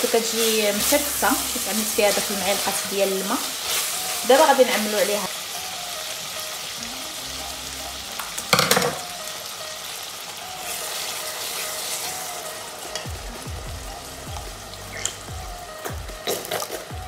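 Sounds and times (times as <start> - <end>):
meat sizzling in a pot: 0.0 - 17.0
utensil clattering on pot: 8.5 - 9.0.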